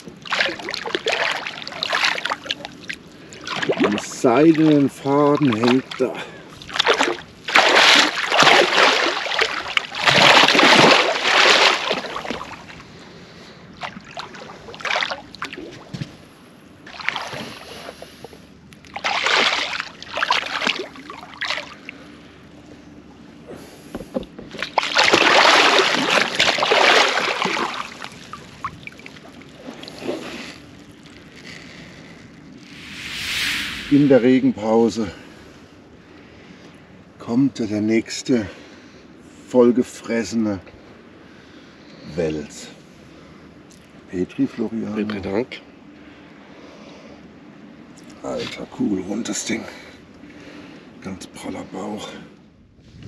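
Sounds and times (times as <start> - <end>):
fish splashing at water surface: 6.7 - 12.6, 18.9 - 21.8, 24.6 - 31.8.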